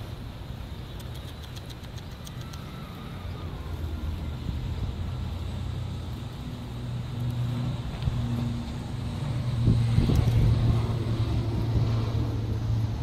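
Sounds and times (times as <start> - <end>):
low engine rumble: 0.0 - 13.0
low hum: 0.0 - 13.0
faint light ticks: 0.9 - 2.7.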